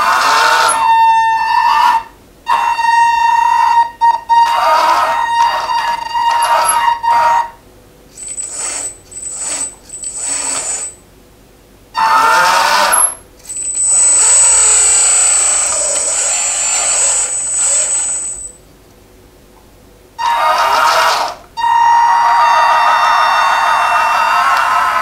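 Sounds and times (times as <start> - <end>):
toy motors whining: 0.0 - 11.0, 12.0 - 18.6, 20.2 - 25.0
hydraulic pump high whine: 0.0 - 11.1, 11.9 - 18.7.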